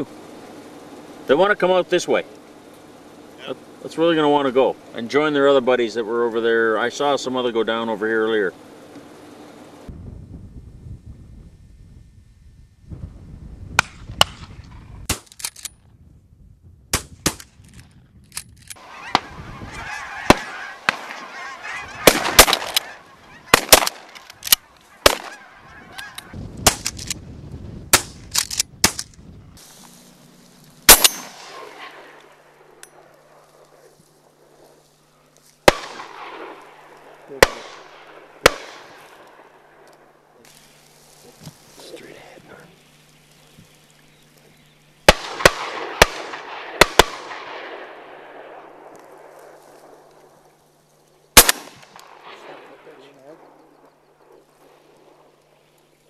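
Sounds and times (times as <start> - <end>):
shotgun blasts: 13.8 - 15.4, 16.9 - 17.6, 20.2 - 27.2, 27.9 - 29.1, 30.9 - 32.7, 35.6 - 39.8, 45.0 - 50.0, 51.4 - 53.5
geese honking overhead: 18.8 - 26.4
echo rolling away: 30.0 - 34.8.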